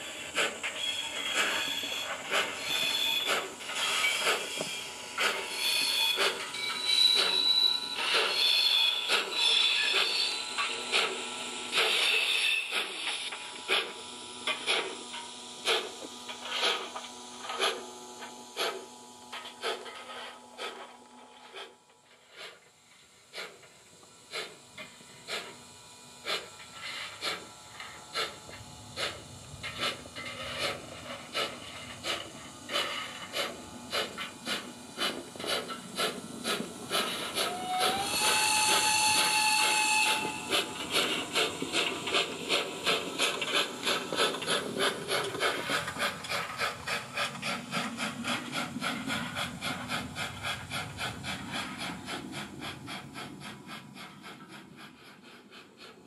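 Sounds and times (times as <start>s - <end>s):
model steam locomotive chuffs: 0.0s - 56.0s
steam whistle: 37.4s - 40.7s.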